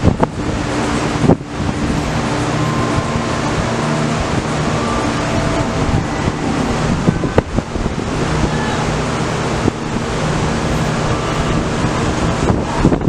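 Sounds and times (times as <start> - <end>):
city din: 0.0 - 13.0
wind buffeting microphone: 0.0 - 13.0.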